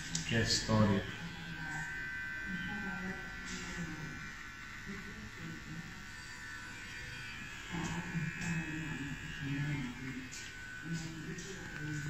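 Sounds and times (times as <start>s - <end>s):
beard trimmer buzzing: 0.0s - 12.0s.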